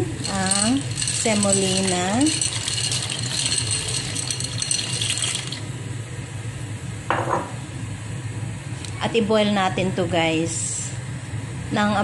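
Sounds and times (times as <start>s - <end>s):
water boiling: 0.0s - 5.8s
dry pasta rattling into pan: 0.2s - 5.6s.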